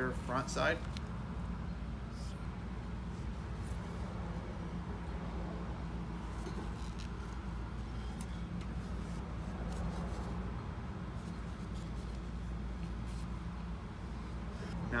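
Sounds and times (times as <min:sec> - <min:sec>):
steady low hum: 0:00.0 - 0:15.0
handling clicks and rubs: 0:00.8 - 0:01.2, 0:06.2 - 0:10.4, 0:11.1 - 0:13.5.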